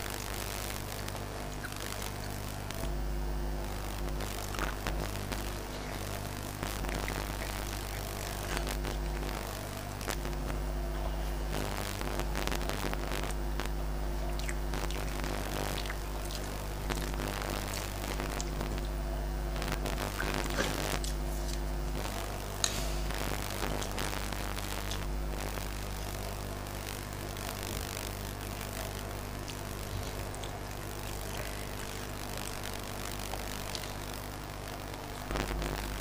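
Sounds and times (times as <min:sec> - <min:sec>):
eating sounds: 0:00.0 - 0:26.4, 0:27.2 - 0:36.0
steady low hum: 0:00.0 - 0:36.0.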